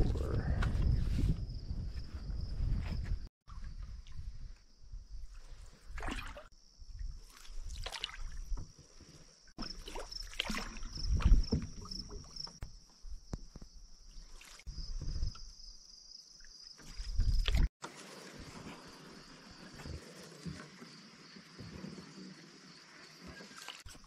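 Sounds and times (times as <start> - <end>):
wind rumbling on microphone: 0.0 - 6.0, 10.8 - 12.3, 14.7 - 15.5, 16.9 - 17.7
canoe paddle splashing in water: 5.8 - 6.5, 7.2 - 8.8, 9.6 - 12.4.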